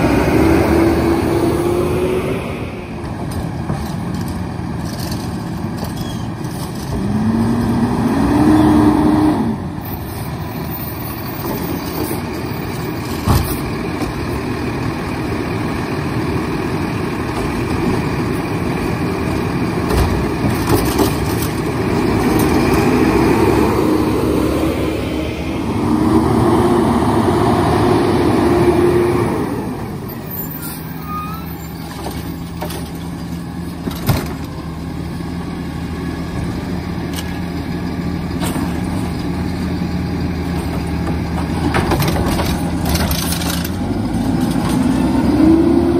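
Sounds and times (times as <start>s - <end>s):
diesel truck engine revving: 0.0s - 3.2s, 6.9s - 9.8s, 21.1s - 31.8s, 34.4s - 45.9s.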